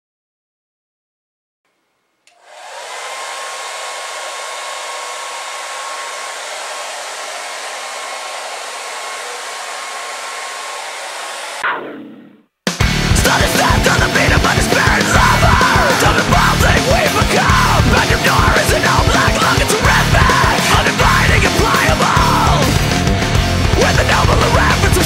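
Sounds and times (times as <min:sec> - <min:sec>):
hair dryer blowing: 0:02.3 - 0:11.6, 0:13.5 - 0:23.6
loud rock music: 0:02.8 - 0:25.0.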